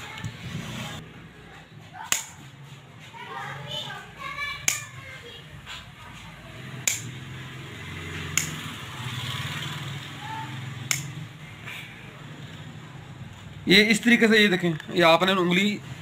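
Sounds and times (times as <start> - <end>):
shears snipping cloth: 2.0 - 2.8.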